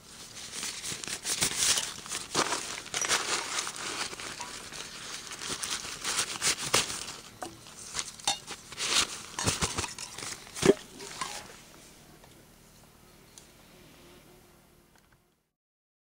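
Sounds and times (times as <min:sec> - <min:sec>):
fabric sack rustling: 0:00.0 - 0:11.6.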